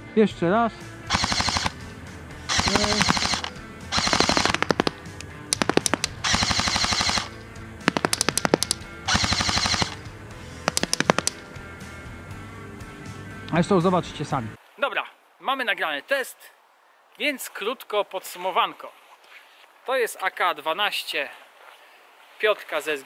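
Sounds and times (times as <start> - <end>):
airsoft rifle full-auto bursts: 1.1 - 1.8, 2.5 - 10.0, 10.6 - 11.4
scatter of sharp ticks: 2.5 - 10.0, 10.6 - 11.5.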